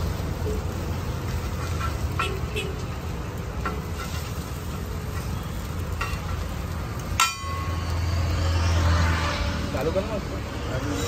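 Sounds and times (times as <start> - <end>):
frying sizzle: 0.0 - 11.0
spatula scraping griddle: 1.0 - 7.1.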